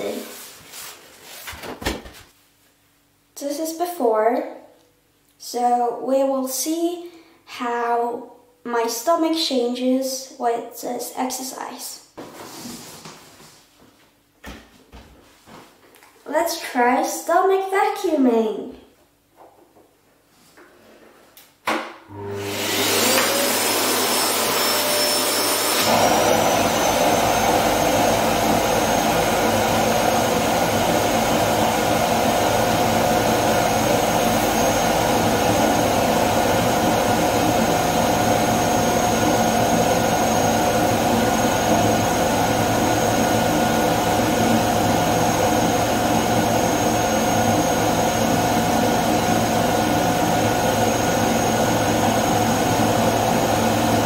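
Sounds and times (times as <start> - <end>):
vacuum cleaner whine: 22.1 - 54.0.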